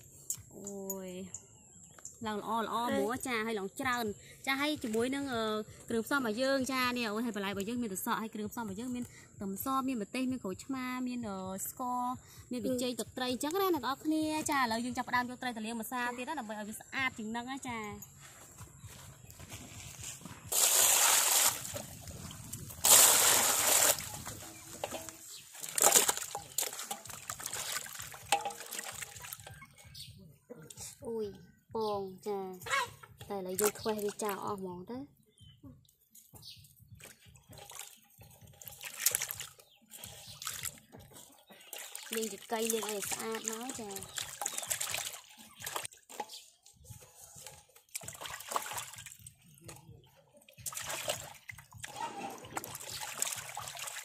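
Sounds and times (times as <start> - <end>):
water splashing and sloshing: 19.5 - 31.0, 33.0 - 34.7, 36.1 - 54.0
water pouring into metal basin: 20.5 - 22.0, 22.7 - 29.8, 41.7 - 45.9, 50.6 - 54.0.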